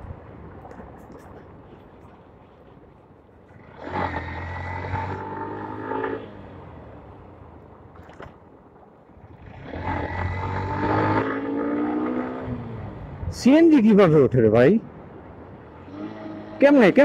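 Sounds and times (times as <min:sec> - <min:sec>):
motorcycle engine revving: 0:03.5 - 0:07.0, 0:09.3 - 0:13.0, 0:15.8 - 0:17.0.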